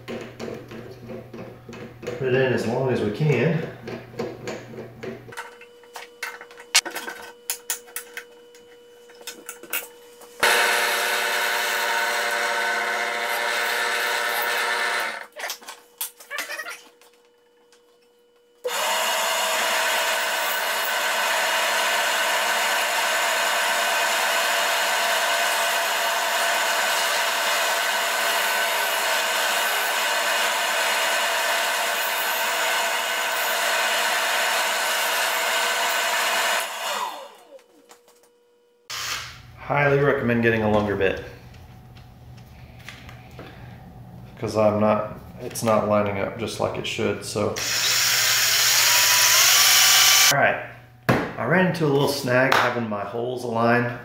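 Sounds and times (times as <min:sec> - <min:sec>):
drill press drilling into wood: 0:10.4 - 0:15.3, 0:18.6 - 0:37.6, 0:47.6 - 0:50.3.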